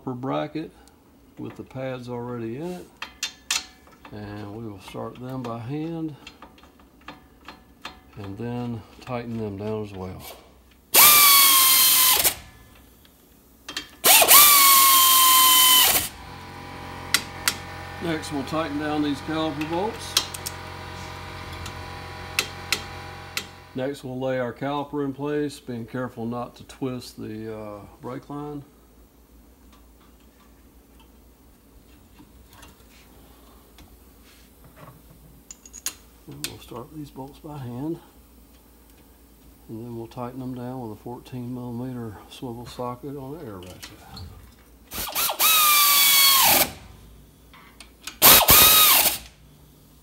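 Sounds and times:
air ratchet whining: 11.0 - 12.6, 13.7 - 23.7, 44.9 - 46.9, 48.1 - 49.3
low steady hum: 12.1 - 45.0.

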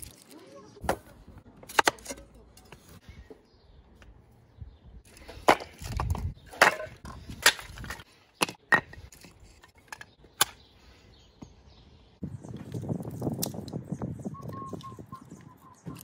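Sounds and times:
wooden sticks clacking on stone: 5.2 - 10.5.

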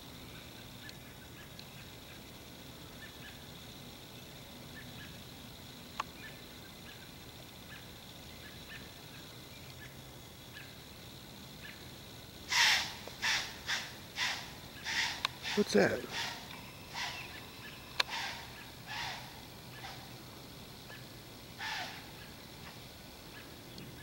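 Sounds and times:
faint chirps: 0.0 - 24.0
loud breathy blasts: 12.5 - 20.1.

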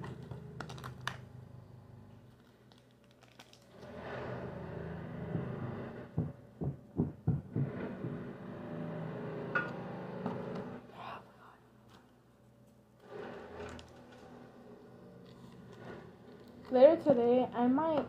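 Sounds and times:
aluminium foil crinkling: 0.0 - 1.2, 2.3 - 3.8.

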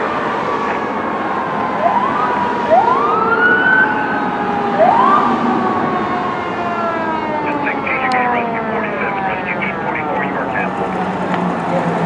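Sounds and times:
fire engine siren wailing: 0.0 - 12.0
traffic noise: 0.0 - 12.0.

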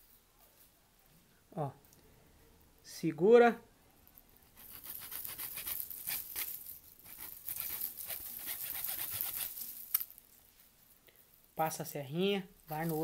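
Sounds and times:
hacksaw rasping through bamboo: 4.6 - 6.5, 7.1 - 9.6.

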